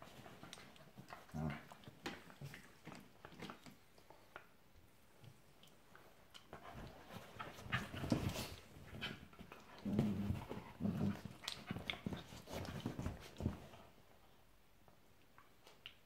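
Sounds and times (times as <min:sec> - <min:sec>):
dogs growling: 0:09.8 - 0:11.5.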